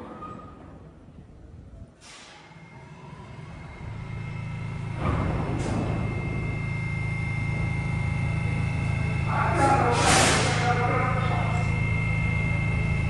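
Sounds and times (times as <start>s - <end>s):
subway train rumble: 0.0s - 13.0s
high whine: 3.4s - 13.0s.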